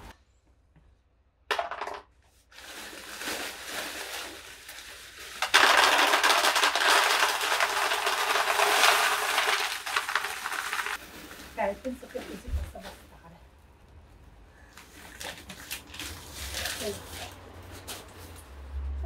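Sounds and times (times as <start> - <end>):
plastic bag rustling: 2.4 - 13.3, 14.8 - 18.5
clay pebbles clattering into planter: 5.2 - 11.0.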